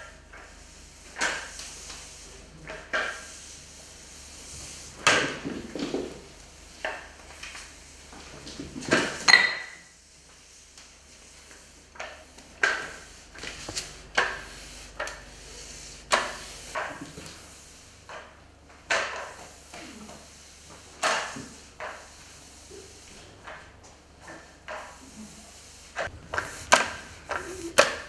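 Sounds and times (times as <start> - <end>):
mop knocking on tiled floor: 11.4 - 15.4, 16.1 - 17.4, 18.1 - 25.2, 26.0 - 28.0.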